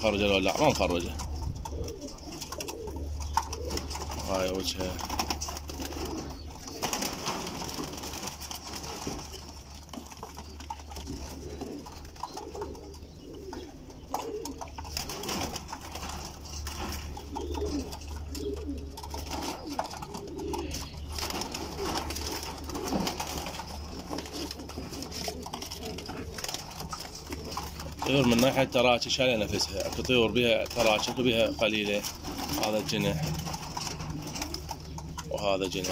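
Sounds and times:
pigeons cooing: 0.0s - 35.9s
clicks and rustles of bird handling: 0.7s - 35.9s.

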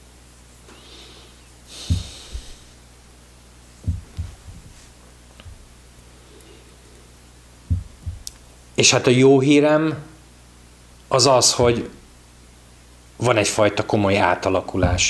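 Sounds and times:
faint steady hum: 0.0s - 15.0s
quick breath in: 0.7s - 2.8s
soft low thumps: 1.8s - 2.8s, 3.8s - 5.8s, 7.6s - 8.4s, 11.6s - 12.2s, 14.8s - 15.0s.

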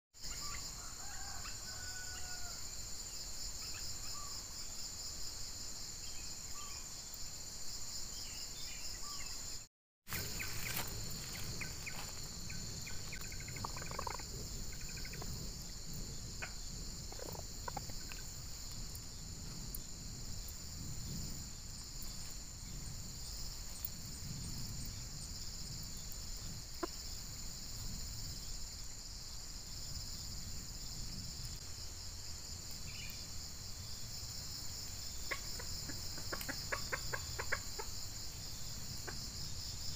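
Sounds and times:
insect chorus: 0.2s - 39.9s
hands rustling in dry grass: 10.1s - 12.4s
bird calls: 10.1s - 15.4s.

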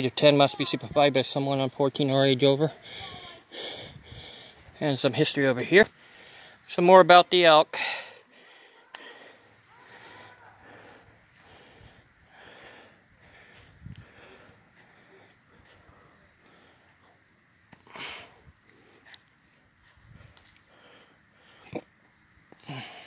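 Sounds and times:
high pulsing insect trill: 0.0s - 23.0s.

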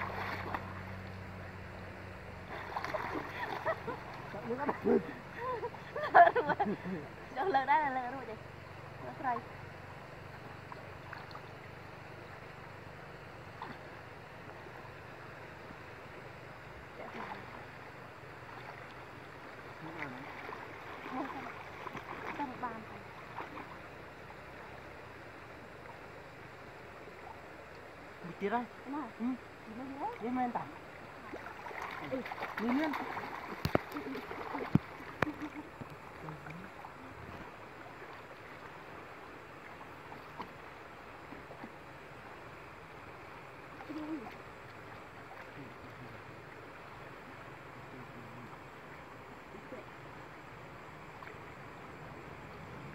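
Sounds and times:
people splashing while swimming: 0.0s - 1.0s, 2.4s - 6.0s, 19.7s - 23.8s, 31.2s - 38.2s
river water: 0.0s - 52.9s
wind: 0.0s - 52.9s.

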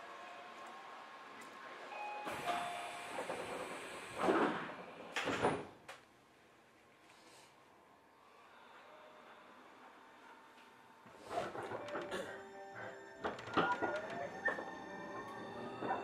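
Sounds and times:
sliding train doors closing: 1.4s - 5.8s, 11.1s - 16.0s.

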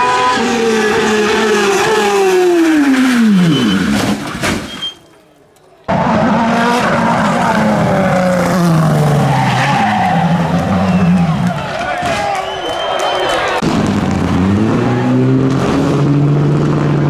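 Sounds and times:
racing car engine running hard: 13.6s - 17.0s.

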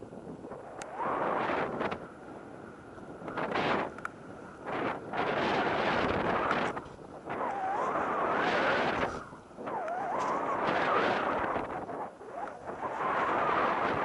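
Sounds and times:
wind on microphone: 0.0s - 14.0s.

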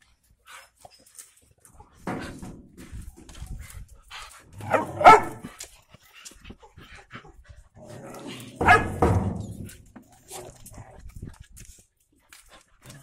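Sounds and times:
dogs barking: 4.6s - 5.5s, 8.6s - 9.1s.

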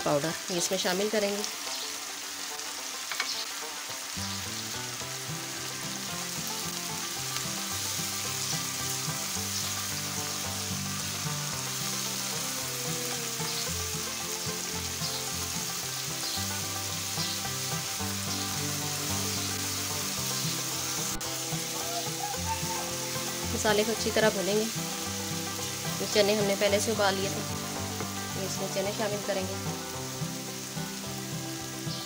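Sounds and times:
spices sizzling in hot oil: 0.0s - 32.0s.

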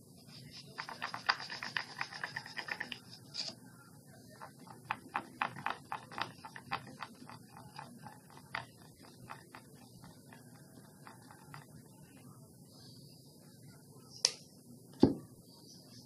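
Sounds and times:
stirrer tapping and scraping bowl: 0.6s - 3.1s, 4.3s - 12.4s.

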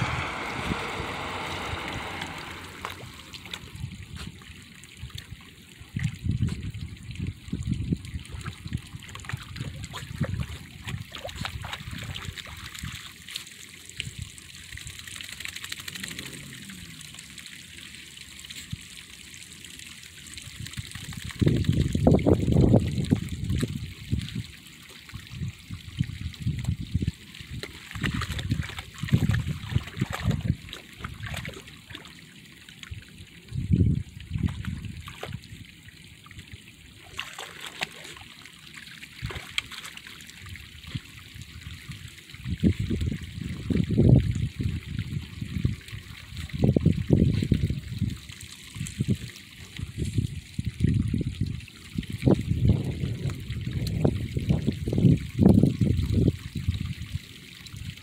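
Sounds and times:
low rumbling gusts: 0.0s - 4.3s, 52.2s - 56.9s
water trickling down a channel: 0.0s - 58.0s.

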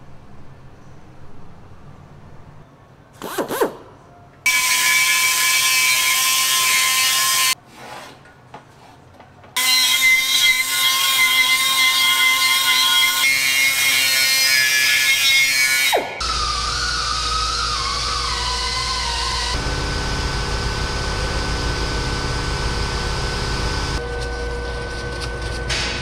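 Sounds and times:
die grinder whining: 16.2s - 25.6s.

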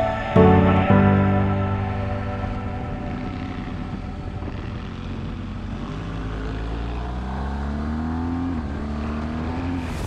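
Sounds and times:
wind and road noise: 1.2s - 10.0s
motorcycle engine revving: 2.4s - 10.0s.

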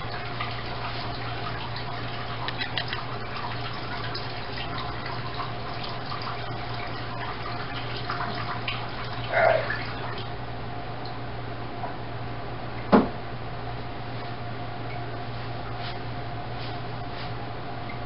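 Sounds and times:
faucet water filling metal pot: 0.0s - 10.2s.

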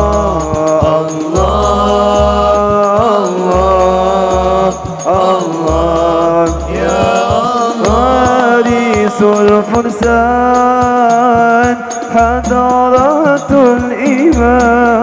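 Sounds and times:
light percussion: 0.0s - 15.0s
person singing devotional song: 0.0s - 15.0s
deep bass: 5.6s - 9.3s, 10.0s - 10.9s.

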